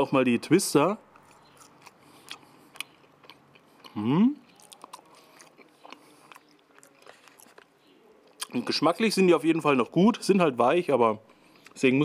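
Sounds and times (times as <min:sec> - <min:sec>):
person chewing: 0:01.1 - 0:08.7, 0:11.3 - 0:11.8.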